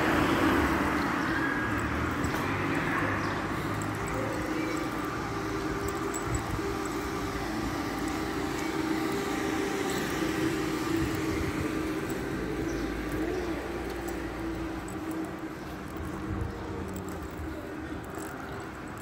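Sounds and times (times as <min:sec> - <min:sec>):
street ambience: 0:00.0 - 0:19.0
low mechanical hum: 0:03.8 - 0:19.0.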